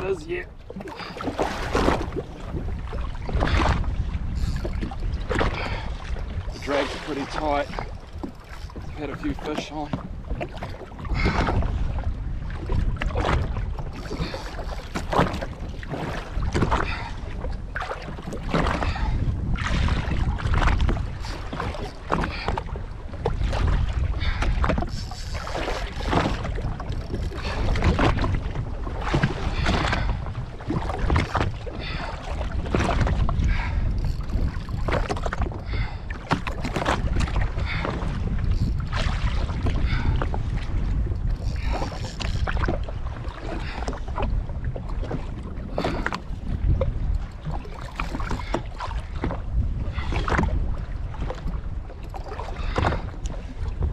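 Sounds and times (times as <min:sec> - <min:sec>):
water slapping against hull: 0:00.0 - 0:53.9
wind buffeting microphone: 0:00.0 - 0:53.9.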